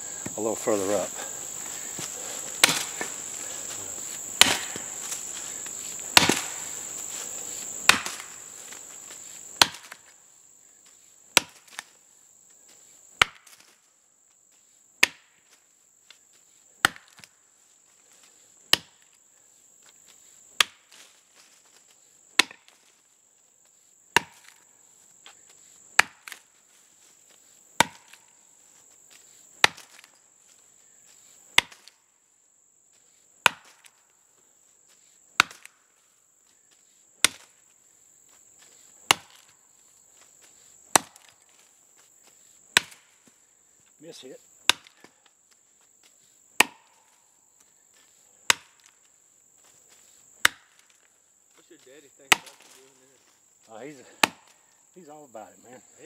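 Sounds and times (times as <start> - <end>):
axe chopping tree trunk: 2.5 - 5.4, 6.0 - 6.8, 7.8 - 8.4, 9.5 - 10.1, 11.3 - 11.9, 13.2 - 13.7, 15.0 - 15.4, 16.8 - 17.3, 18.7 - 19.1, 20.6 - 21.0, 22.4 - 22.8, 24.1 - 24.6, 26.0 - 26.5, 27.8 - 28.3, 29.6 - 30.2, 31.6 - 32.0, 33.4 - 34.0, 35.4 - 35.8, 37.2 - 37.5, 39.1 - 39.5, 40.9 - 41.4, 42.7 - 43.2, 44.6 - 45.2, 46.6 - 47.2, 48.4 - 49.0, 50.4 - 50.9, 52.3 - 52.8, 54.1 - 54.7.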